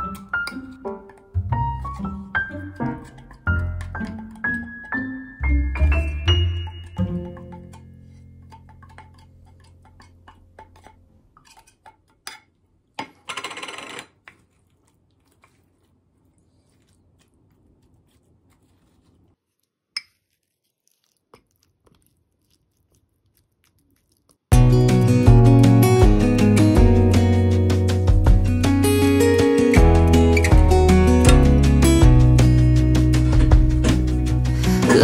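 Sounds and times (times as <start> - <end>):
spoon scraping metal can: 0.0 - 5.3, 5.9 - 12.5
piano music: 0.0 - 7.9, 24.6 - 35.0
spoon clinking on can and bowl: 6.0 - 12.5.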